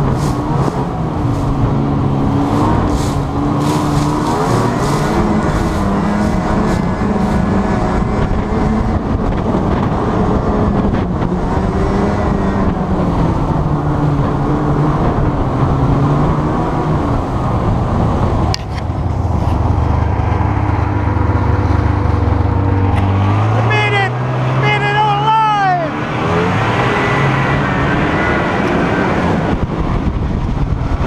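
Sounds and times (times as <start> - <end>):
engine running hard: 0.0 - 31.0.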